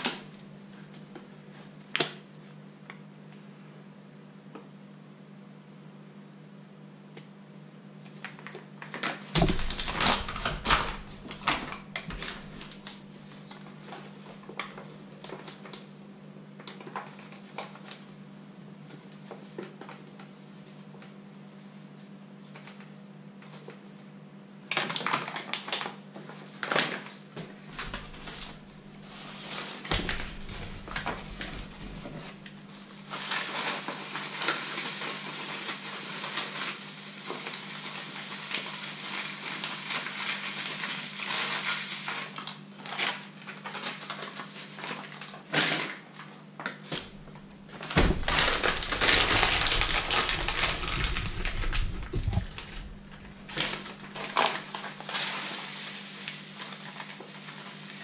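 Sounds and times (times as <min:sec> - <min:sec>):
paper bag crinkling: 0:08.2 - 0:15.8, 0:24.7 - 0:58.0.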